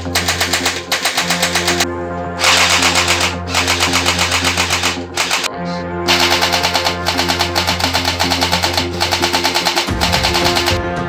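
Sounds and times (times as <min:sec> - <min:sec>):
toy blaster firing rapidly: 0:00.1 - 0:01.8, 0:02.4 - 0:05.5, 0:06.1 - 0:10.8
electronic music with fast beat: 0:06.1 - 0:10.8.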